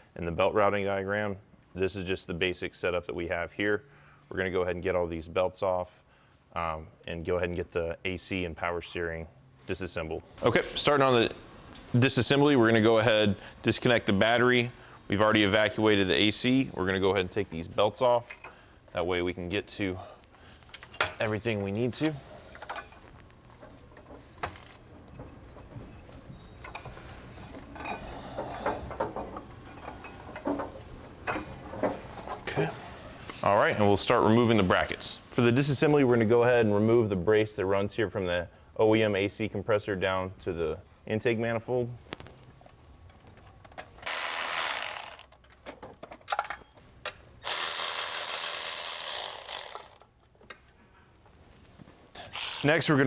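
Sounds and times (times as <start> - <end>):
rubber belts rubbing and rustling: 23.0 - 33.9
tool clicks: 43.6 - 50.1
power ratchet spinning: 44.0 - 45.4, 47.4 - 50.1, 52.2 - 52.9.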